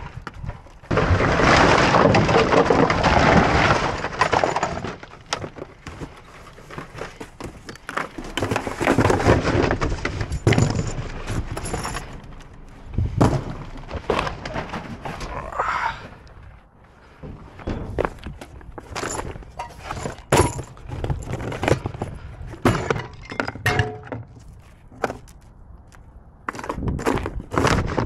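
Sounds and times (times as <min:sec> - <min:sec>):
cardboard packaging rustling: 0:05.2 - 0:15.5.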